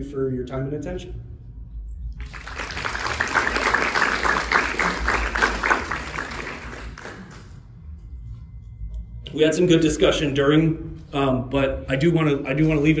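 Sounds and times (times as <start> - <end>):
audience applauding: 2.2 - 7.6.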